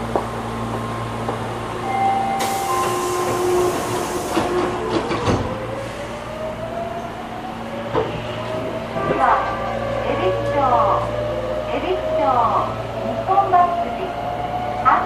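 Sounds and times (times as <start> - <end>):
train equipment hum: 0.0 - 15.0
loud hiss of air: 2.4 - 4.5.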